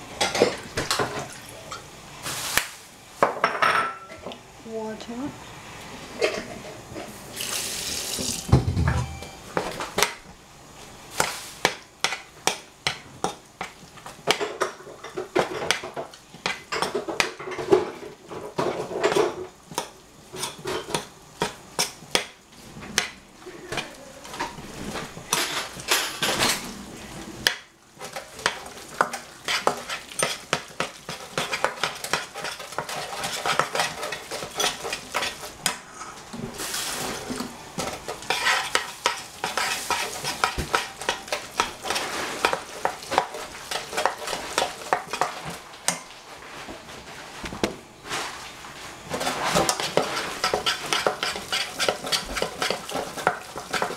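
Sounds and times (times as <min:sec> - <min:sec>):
metal spoon scraping a pan: 0:28.0 - 0:36.1, 0:37.8 - 0:45.6, 0:49.1 - 0:53.9.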